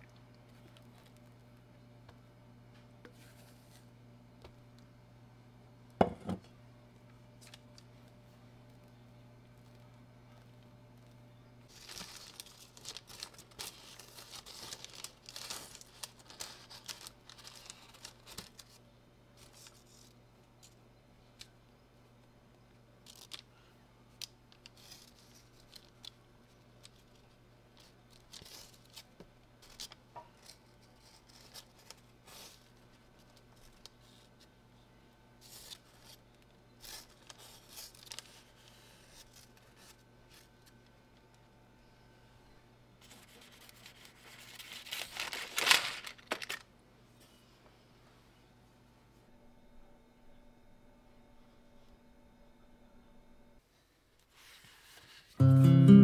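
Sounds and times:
baking parchment rustling: 11.7s - 20.8s, 23.0s - 34.6s, 35.4s - 41.0s, 43.0s - 46.7s.

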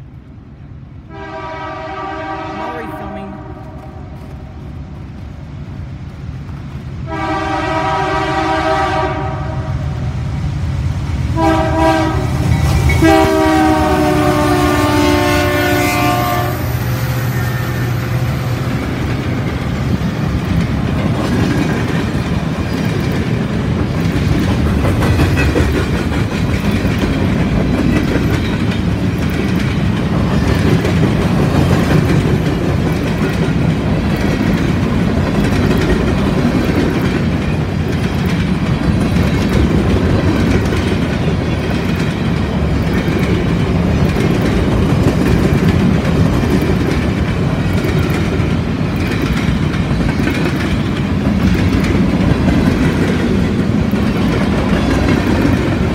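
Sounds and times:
train rumble: 0.0s - 55.9s
train horn blasts: 1.1s - 4.5s, 7.1s - 9.9s, 11.4s - 12.4s, 13.0s - 16.8s
train wheels clacking on rails: 11.0s - 55.9s.

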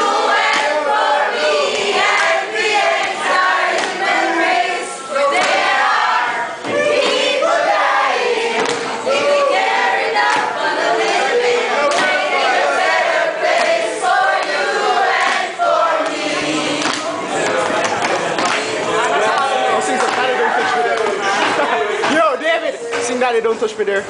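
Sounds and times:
group singing and chanting: 0.0s - 23.1s.

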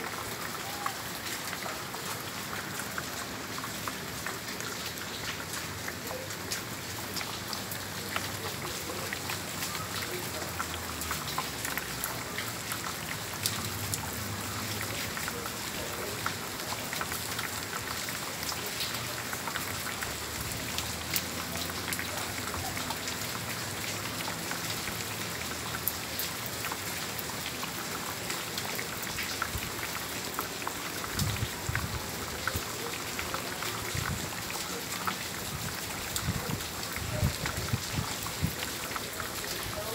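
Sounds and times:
heavy rain on tile roofs: 0.0s - 39.9s.

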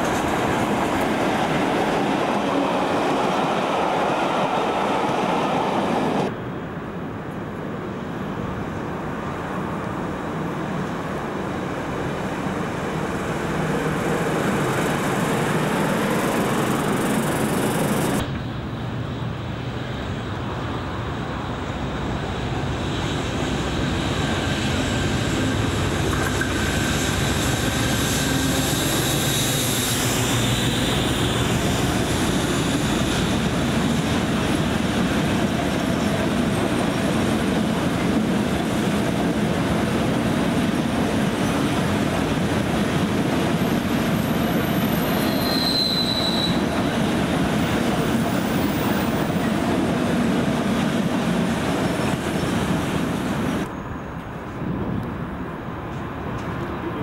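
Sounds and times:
high-pitched wheel squeals: 43.8s - 46.7s.

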